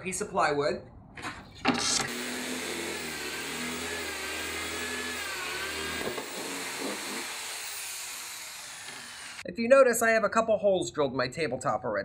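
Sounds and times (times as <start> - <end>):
electric drill boring through wood: 1.8 - 9.4.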